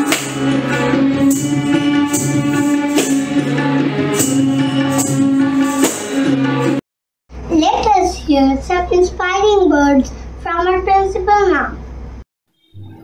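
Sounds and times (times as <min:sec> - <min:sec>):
jingling percussion strikes: 0:00.0 - 0:06.8
steady drone: 0:00.0 - 0:06.8.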